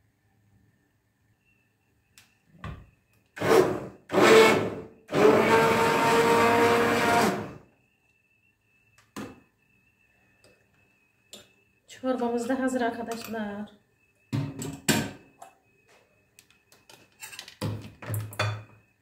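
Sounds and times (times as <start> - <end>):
electric blender whirring: 3.4 - 7.6.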